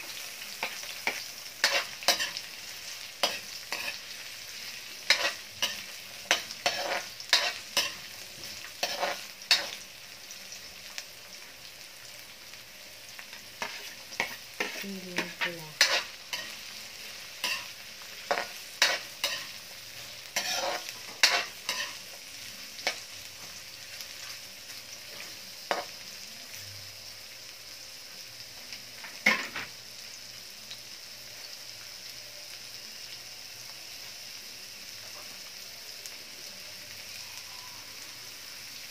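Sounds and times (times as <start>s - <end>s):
vegetables sizzling in a wok: 0.0s - 38.9s
metal spatula scraping a wok: 0.5s - 9.8s, 13.4s - 22.2s.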